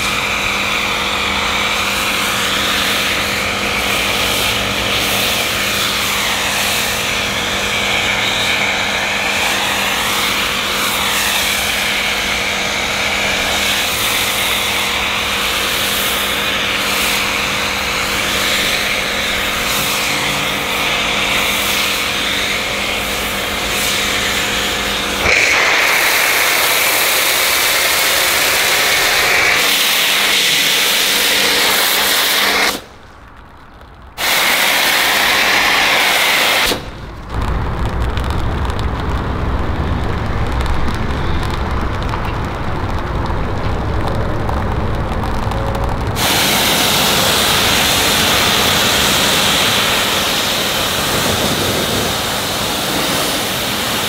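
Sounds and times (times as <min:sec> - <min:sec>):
pressure washer spraying: 0:00.0 - 0:33.0, 0:34.2 - 0:37.4, 0:46.1 - 0:54.0
deep rumble: 0:36.8 - 0:53.4.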